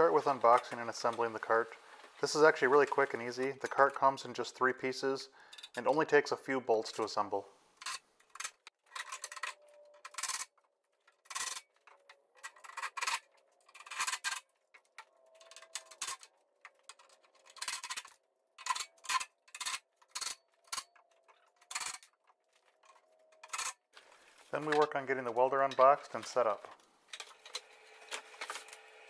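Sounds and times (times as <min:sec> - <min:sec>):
metal parts clicking: 0:07.8 - 0:23.9.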